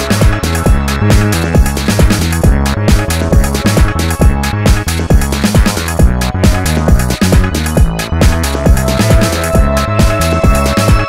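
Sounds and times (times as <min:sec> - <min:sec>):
deep bass line: 0:00.0 - 0:11.0
electronic music: 0:00.0 - 0:11.0
kick drum beat: 0:00.0 - 0:11.0.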